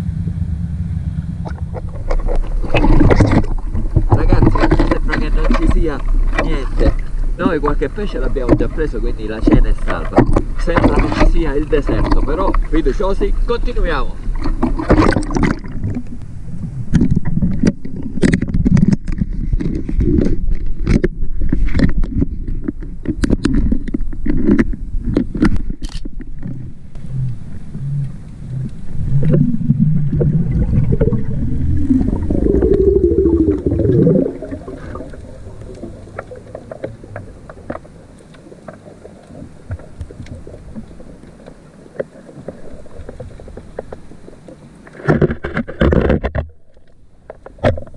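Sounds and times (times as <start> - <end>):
low rumble: 0.0 - 21.6, 24.2 - 41.5
low wavering hum: 0.0 - 44.8
underwater water movement: 0.9 - 47.9
sharp underwater clicks: 1.4 - 13.1, 13.8 - 47.9.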